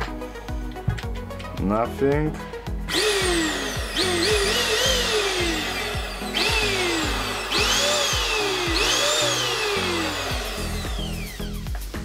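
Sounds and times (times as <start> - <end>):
electronic music with synth sweeps: 0.0 - 12.0.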